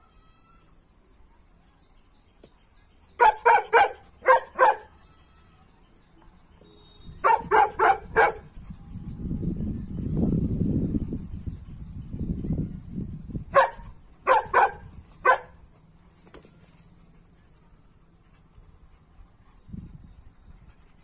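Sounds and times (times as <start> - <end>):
dog barking: 3.2 - 4.9, 7.2 - 8.5, 13.5 - 15.6.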